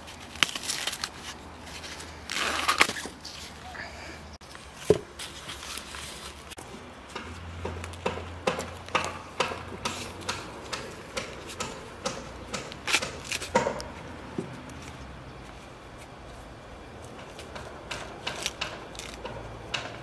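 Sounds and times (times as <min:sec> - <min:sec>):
corn husks tearing: 0:00.0 - 0:03.6, 0:18.2 - 0:19.3.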